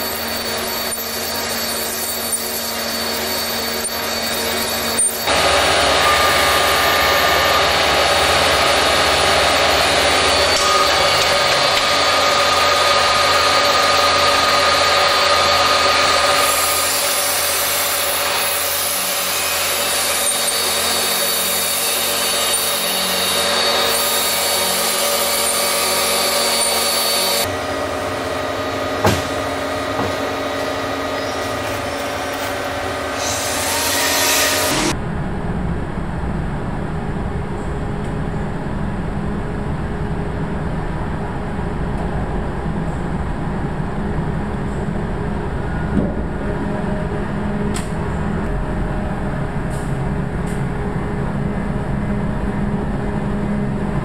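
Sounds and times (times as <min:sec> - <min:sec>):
lathe cutting metal: 0:00.0 - 0:35.0
workshop hum: 0:00.0 - 0:54.0.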